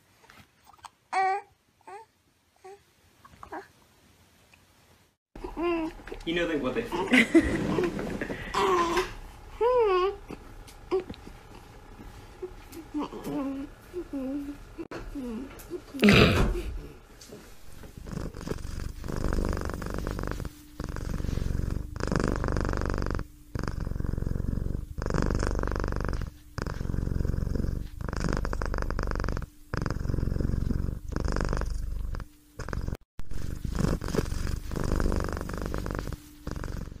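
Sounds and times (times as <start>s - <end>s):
cat purring: 9.7s - 37.0s.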